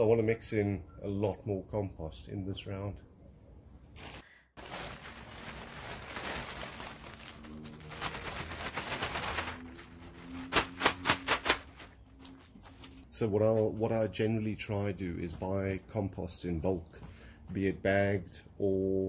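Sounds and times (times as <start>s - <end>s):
compost pouring from plastic sack: 4.0s - 12.0s
sharp crackles: 4.0s - 12.4s.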